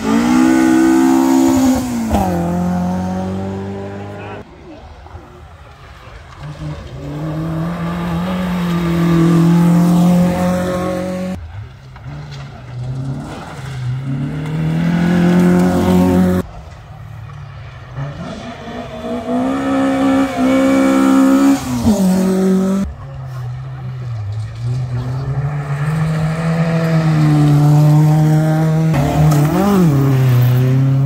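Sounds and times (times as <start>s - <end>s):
rally car engines accelerating: 0.0s - 31.0s.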